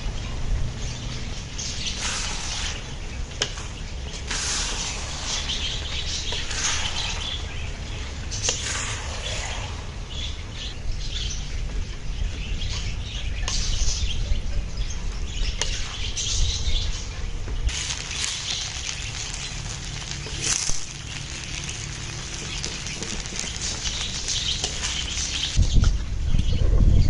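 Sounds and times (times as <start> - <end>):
birds chirping: 0.0 - 27.0
spatula scraping noodles in wok: 1.9 - 3.0, 4.3 - 7.4, 17.7 - 25.6.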